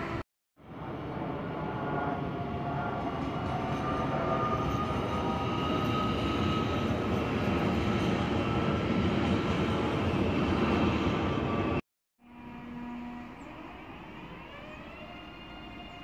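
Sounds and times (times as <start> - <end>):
train wheels rumbling on rails: 1.5 - 11.8.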